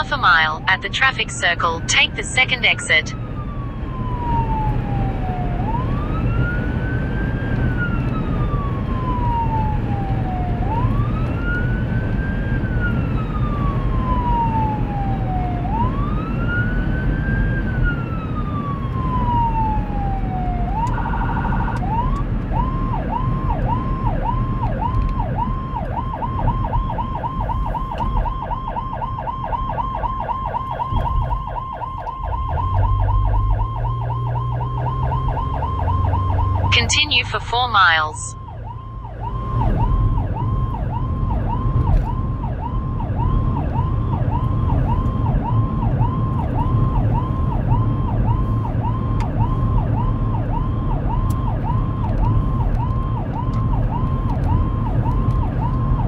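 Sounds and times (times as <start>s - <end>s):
road and engine noise: 0.0s - 56.0s
siren steady blast: 0.0s - 56.0s
siren wailing: 0.0s - 56.0s
siren yelping: 0.0s - 56.0s.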